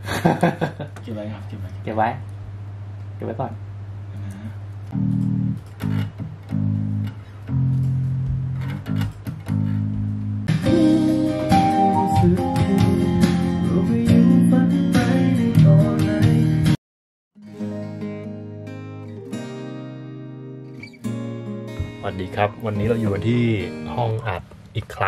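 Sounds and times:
electric bass guitar line: 4.3 - 16.8
band playing with guitar: 9.0 - 16.8.

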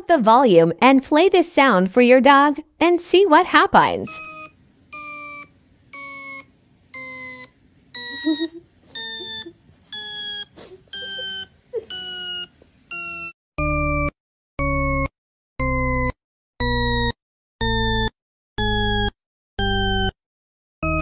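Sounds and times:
repeating electronic beep: 4.1 - 16.1, 16.7 - 20.2.

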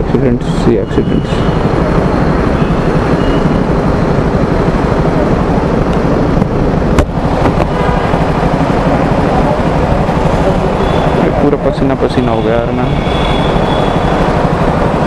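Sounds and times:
motorcycle engine idling: 0.0 - 15.0.

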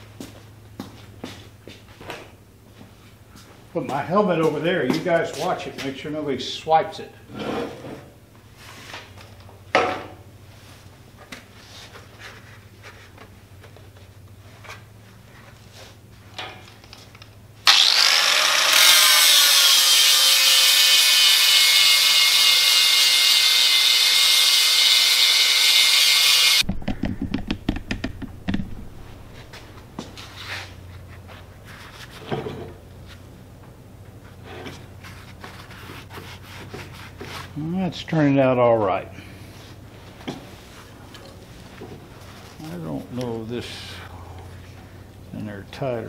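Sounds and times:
angle grinder grinding steel: 17.6 - 26.7.

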